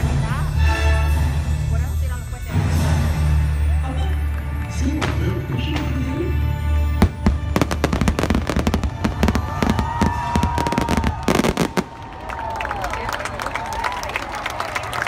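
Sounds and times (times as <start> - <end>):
music playing: 0.0 - 11.8
fireworks bangs and crackles: 4.6 - 12.5.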